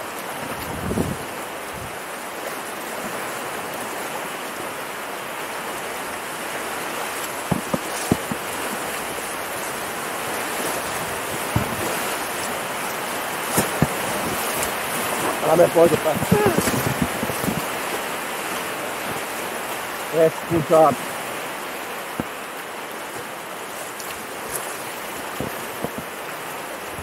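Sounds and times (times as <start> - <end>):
whitewater rapids rushing: 0.0 - 27.0
paddle knocks and splashes: 6.6 - 27.0.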